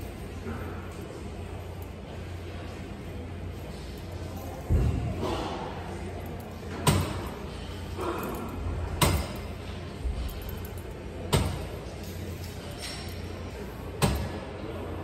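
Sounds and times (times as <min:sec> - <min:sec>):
steady low hum: 0:00.0 - 0:15.0
cable machine clinking: 0:06.2 - 0:14.4.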